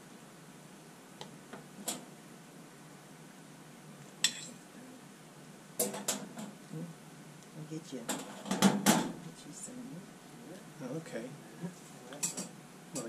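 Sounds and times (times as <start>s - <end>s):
utensils clinking on crockery: 4.3s - 4.6s.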